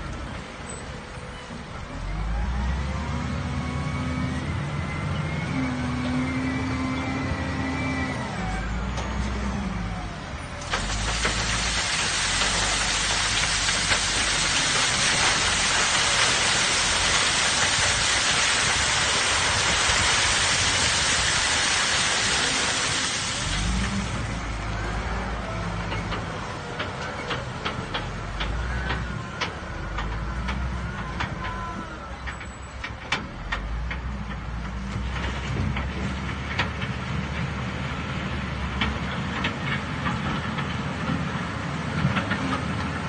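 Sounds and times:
diesel engine running: 0:00.0 - 0:43.0
gravel pouring down steel screen: 0:10.7 - 0:24.2.

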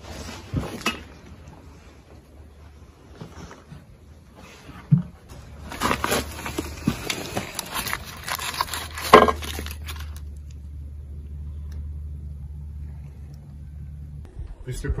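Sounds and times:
low hum: 0:00.0 - 0:15.0
objects scraping in wooden crate: 0:05.4 - 0:10.2.

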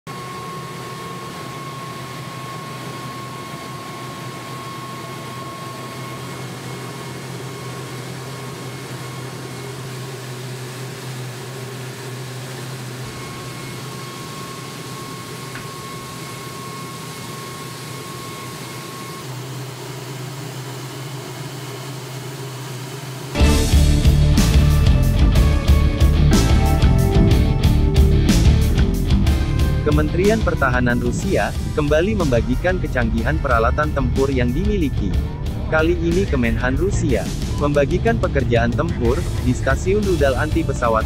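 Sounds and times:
machine hum with high whine: 0:00.1 - 0:41.0.

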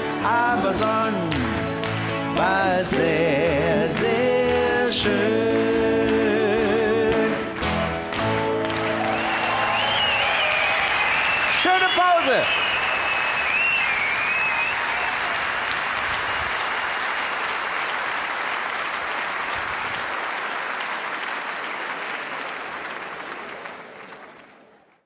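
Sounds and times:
audience applauding: 0:00.8 - 0:25.0
wavering whistle: 0:09.2 - 0:15.0.

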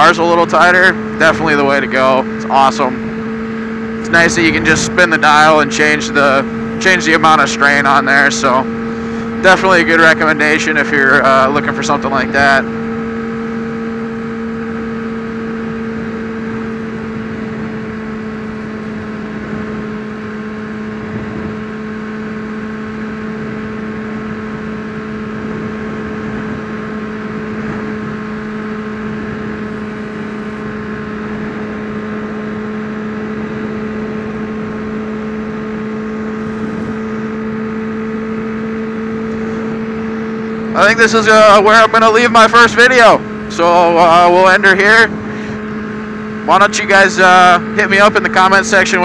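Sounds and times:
motorcycle engine humming: 0:00.0 - 0:49.0
wind rushing over microphone: 0:02.7 - 0:09.4, 0:15.5 - 0:21.9, 0:23.2 - 0:32.5.

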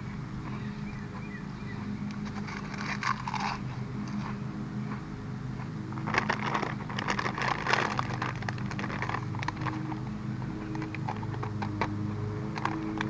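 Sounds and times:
chewing crunchy chips: 0:02.2 - 0:04.3, 0:05.9 - 0:13.0
chip bag crinkling: 0:06.0 - 0:10.0.

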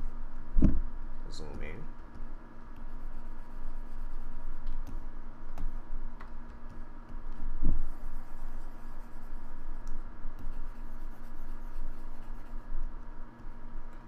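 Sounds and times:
steady hum and low rumble: 0:00.0 - 0:14.0
mouse rubbing on desk: 0:02.7 - 0:05.0, 0:07.4 - 0:09.8, 0:10.4 - 0:12.7.

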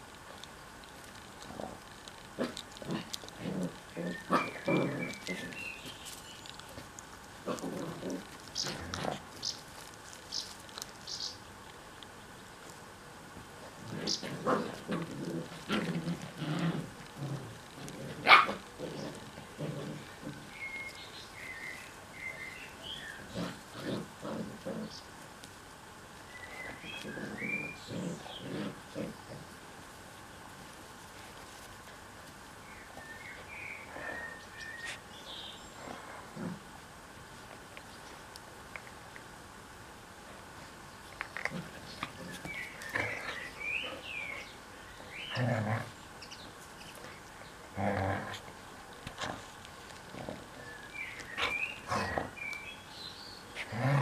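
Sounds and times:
puppies grunting and growling: 0:00.4 - 0:05.9, 0:06.5 - 0:09.9, 0:13.6 - 0:25.1, 0:26.4 - 0:29.8, 0:35.7 - 0:36.8, 0:41.2 - 0:46.2, 0:46.9 - 0:54.0
bird singing: 0:20.3 - 0:23.4, 0:26.3 - 0:28.5, 0:32.7 - 0:35.7, 0:41.8 - 0:45.5, 0:50.5 - 0:53.4.

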